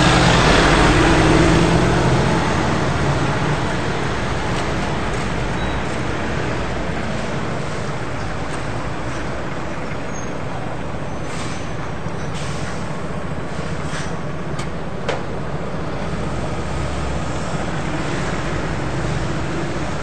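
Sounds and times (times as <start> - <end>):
bus engine idling: 0.0 - 20.0
street traffic: 0.0 - 20.0.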